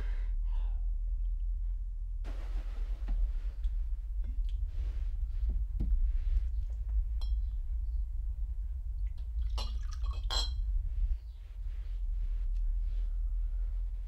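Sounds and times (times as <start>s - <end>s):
low hum: 0.0s - 14.0s
glass clinking: 7.2s - 7.5s, 9.6s - 10.6s.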